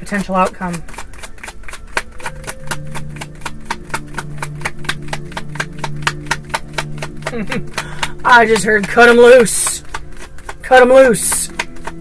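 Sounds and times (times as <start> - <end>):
cards being shuffled: 0.0 - 12.0
low sustained tones: 0.0 - 12.0.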